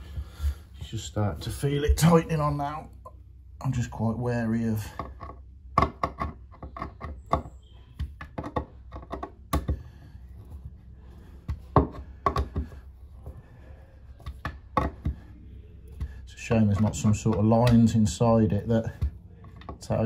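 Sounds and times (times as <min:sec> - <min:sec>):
screwdriver clicking and knocking: 0:05.2 - 0:09.8.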